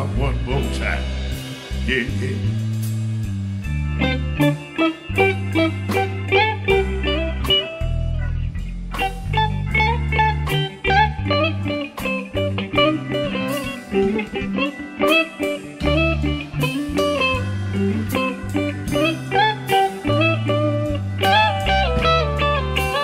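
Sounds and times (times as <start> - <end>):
bass notes: 0.0 - 23.0
electric guitar solo: 3.9 - 23.0.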